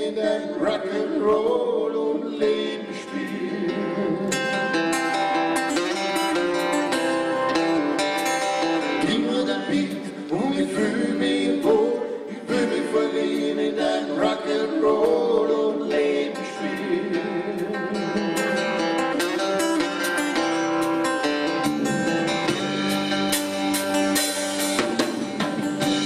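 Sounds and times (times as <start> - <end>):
man singing: 0.0 - 4.7, 8.8 - 20.1, 21.6 - 23.2
guitar: 0.0 - 26.0
drums: 14.8 - 26.0.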